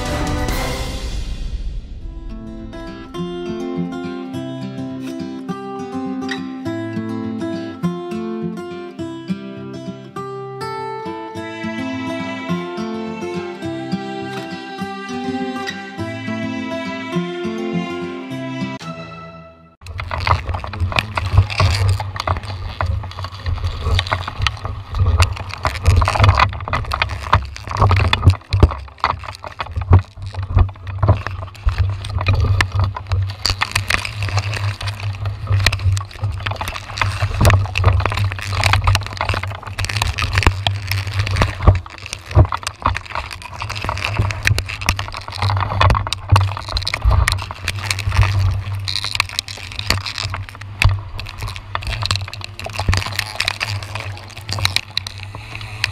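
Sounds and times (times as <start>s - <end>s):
branches knocking: 19.8s - 55.9s
rain on camera: 19.8s - 55.9s.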